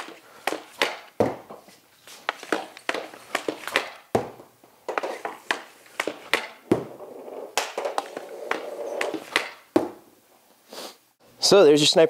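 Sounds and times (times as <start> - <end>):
hockey stick striking pucks: 0.0 - 10.1
pucks hitting canvas tarp: 0.0 - 10.1.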